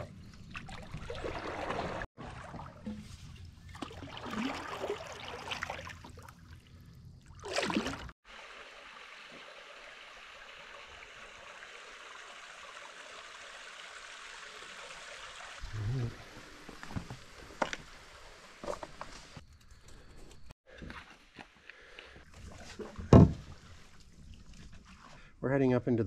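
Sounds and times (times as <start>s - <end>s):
paddle splashes and drips: 0.0s - 19.4s, 20.7s - 25.3s
running water rushing: 7.5s - 19.4s.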